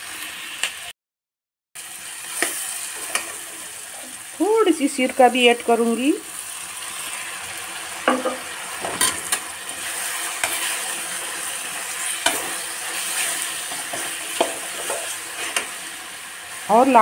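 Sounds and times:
vegetables sizzling in oil: 0.0s - 0.9s, 1.8s - 17.0s
metal spoon scraping a pan: 2.3s - 3.5s, 8.1s - 16.0s.

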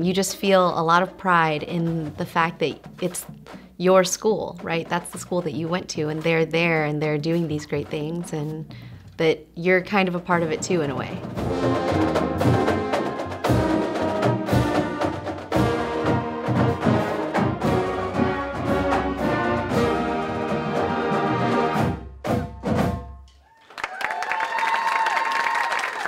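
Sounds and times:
snare and tenor drums: 0.0s - 9.2s, 10.0s - 23.2s
marching brass: 11.2s - 23.1s.

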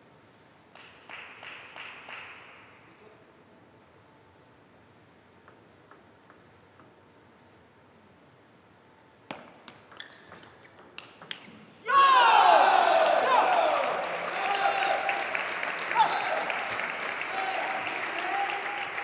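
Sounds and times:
sharp claps: 0.7s - 2.8s, 13.0s - 19.0s
table tennis ball bouncing: 5.4s - 7.1s, 9.3s - 11.6s.

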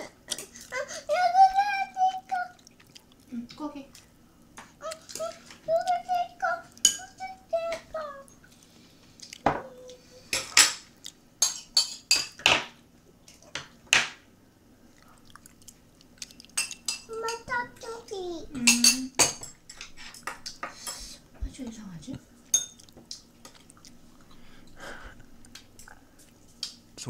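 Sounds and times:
child's vocal sounds: 0.0s - 2.6s, 4.8s - 8.4s, 9.5s - 10.3s.

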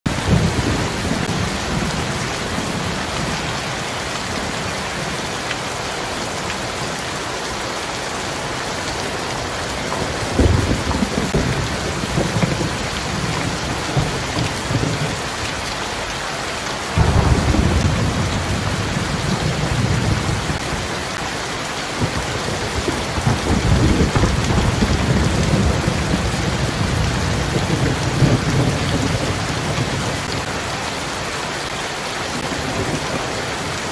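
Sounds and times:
heavy rain on pavement: 0.0s - 33.9s
thunder rumbling: 0.1s - 3.8s, 9.4s - 15.4s, 16.9s - 21.2s, 21.9s - 30.8s.

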